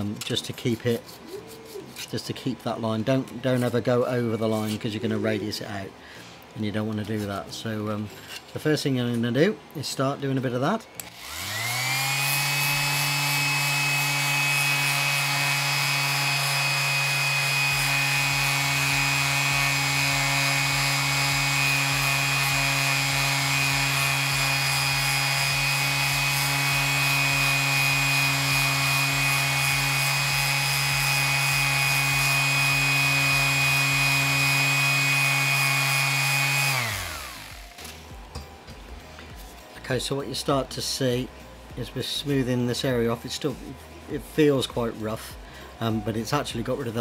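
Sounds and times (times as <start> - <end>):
sandpaper rubbing on plastic: 0.3 - 2.8
orbital sander motor: 11.0 - 38.3.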